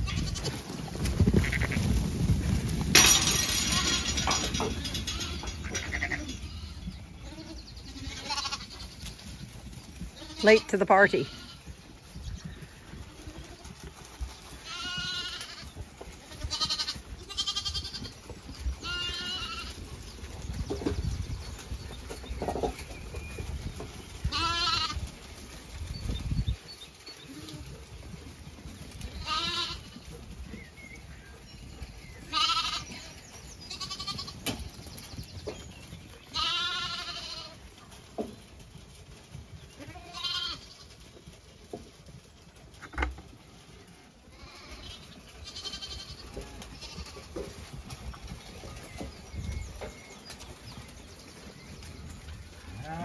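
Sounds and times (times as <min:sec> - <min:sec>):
lambs bleating: 0:01.4 - 0:01.8, 0:05.1 - 0:08.8, 0:14.6 - 0:15.6, 0:16.2 - 0:18.1, 0:18.8 - 0:19.7, 0:24.3 - 0:25.0, 0:29.2 - 0:30.0, 0:32.3 - 0:33.1, 0:33.7 - 0:34.4, 0:36.3 - 0:37.6, 0:39.8 - 0:40.7, 0:44.3 - 0:46.2.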